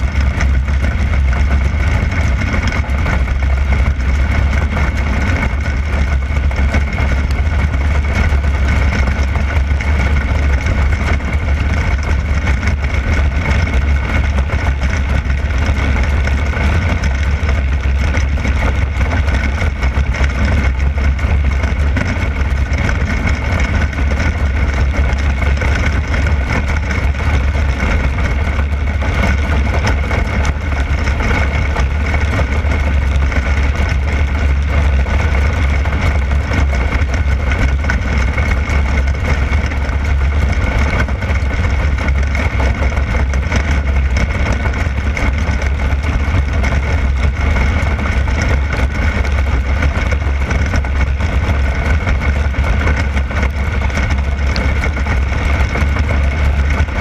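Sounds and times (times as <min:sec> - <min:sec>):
race car engine at full pace: 0:00.0 - 0:57.0.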